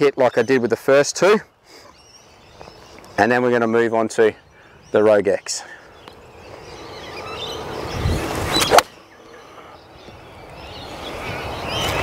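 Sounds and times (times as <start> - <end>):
birds chirping: 0.0 - 12.0
rushing outdoor noise: 0.0 - 12.0
golf club striking ball: 8.6 - 9.0.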